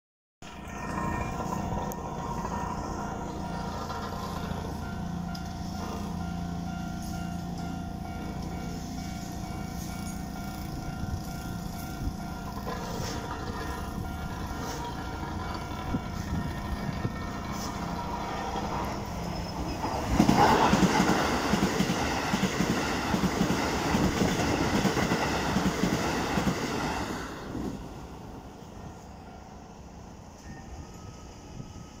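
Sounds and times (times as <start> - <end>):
train wheels clattering over joints: 0.6 - 4.8, 12.5 - 26.7
level crossing alarm ringing: 0.7 - 17.2.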